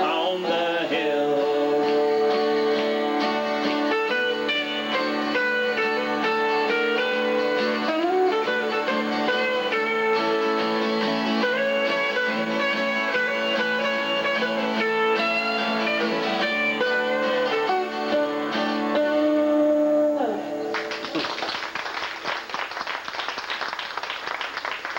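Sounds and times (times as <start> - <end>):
acoustic and electric guitars: 0.0 - 23.0.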